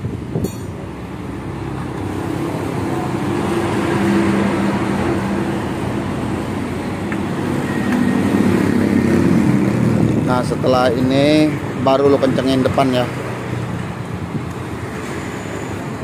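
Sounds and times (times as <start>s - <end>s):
road traffic noise: 0.0s - 16.0s.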